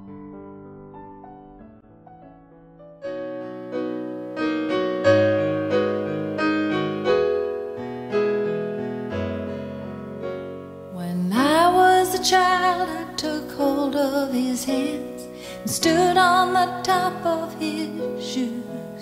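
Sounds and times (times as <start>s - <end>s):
slow piano music: 0.0s - 19.0s.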